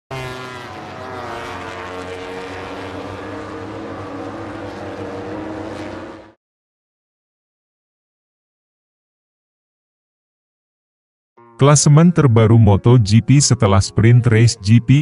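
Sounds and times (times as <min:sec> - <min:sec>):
motorcycle engine at high revs: 0:00.1 - 0:06.4.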